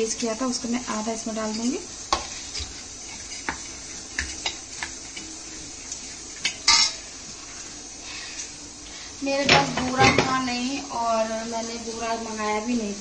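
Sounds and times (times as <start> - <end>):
spoon scraping dry mixture in bowl: 1.5 - 7.0.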